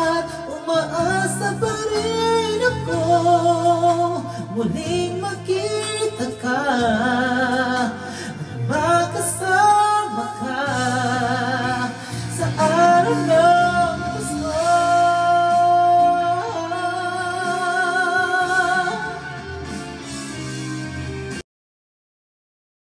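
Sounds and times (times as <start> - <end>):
man singing into microphone: 0.0 - 19.7
backing music: 0.0 - 21.4.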